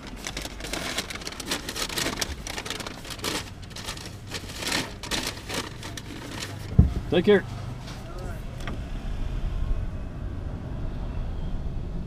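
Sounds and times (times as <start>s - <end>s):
paper bag rustling: 0.0s - 8.3s.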